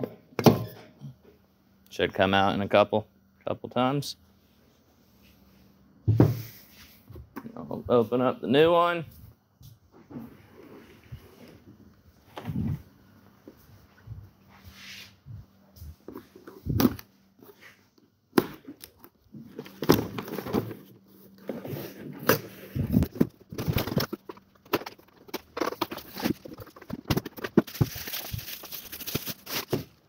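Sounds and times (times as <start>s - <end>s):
plastic wrapping crinkling: 23.0s - 30.0s.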